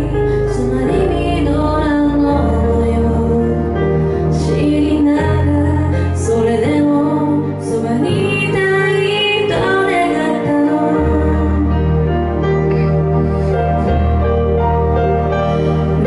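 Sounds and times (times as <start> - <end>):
woman singing into microphone: 0.0 - 12.2
instrumental accompaniment: 0.0 - 16.0.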